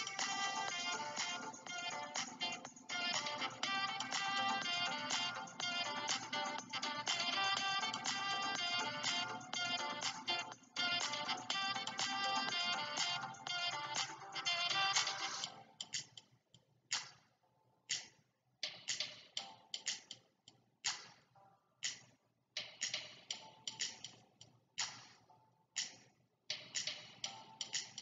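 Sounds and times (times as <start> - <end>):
music: 0.0 - 28.0
sharp ticks and taps: 15.8 - 16.3, 17.9 - 21.2, 21.8 - 25.2, 25.8 - 28.0.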